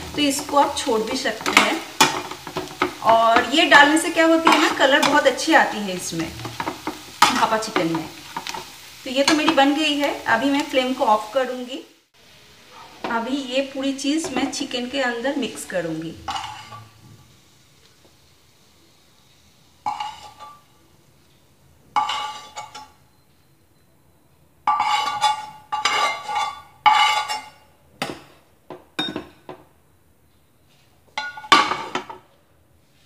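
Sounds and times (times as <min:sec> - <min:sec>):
metal spatula scraping pan: 0:00.0 - 0:10.0, 0:16.2 - 0:17.1, 0:19.8 - 0:20.7, 0:22.0 - 0:23.0, 0:24.7 - 0:27.6.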